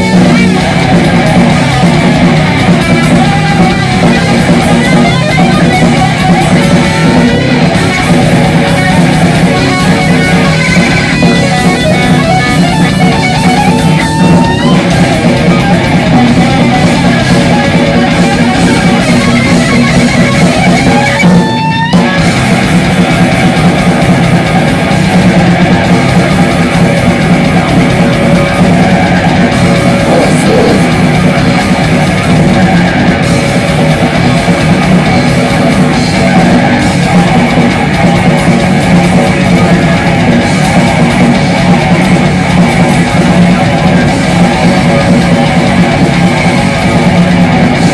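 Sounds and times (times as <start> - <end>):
heavy metal band playing live: 0.0 - 47.9
rising guitar slides: 0.0 - 47.9.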